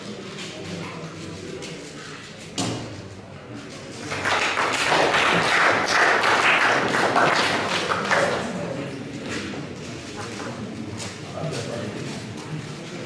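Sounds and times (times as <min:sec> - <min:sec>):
thump: 0:02.6 - 0:03.0
audience applause: 0:04.0 - 0:08.6.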